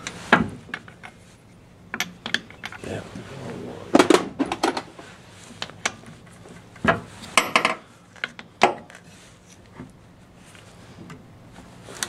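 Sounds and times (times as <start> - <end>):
metal clicks and knocks: 1.9 - 2.8.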